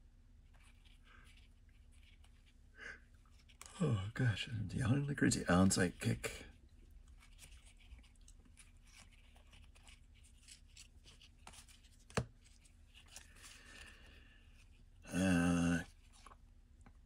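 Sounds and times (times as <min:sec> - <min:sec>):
cards rustling and clicking: 0:00.5 - 0:03.8, 0:05.6 - 0:14.9, 0:15.5 - 0:17.0
person vocal sound: 0:15.1 - 0:15.9.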